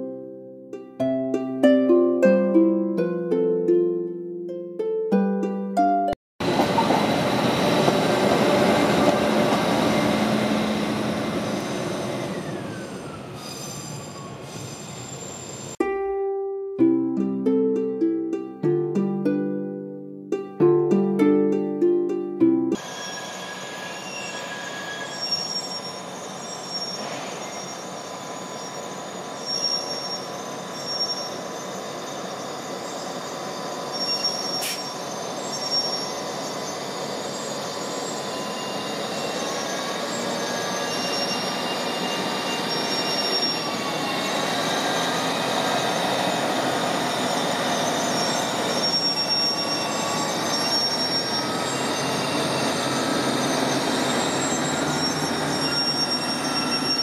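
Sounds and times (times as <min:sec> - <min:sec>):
diesel locomotive engine rumbling: 0:06.4 - 0:15.8, 0:22.8 - 0:57.0
steel wheels squealing on rails: 0:06.4 - 0:15.8, 0:22.8 - 0:57.0.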